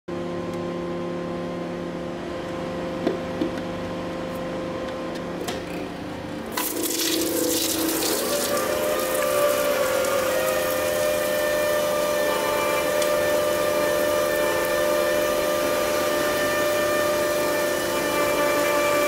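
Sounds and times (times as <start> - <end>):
hydraulic pump humming: 5.3 - 19.0.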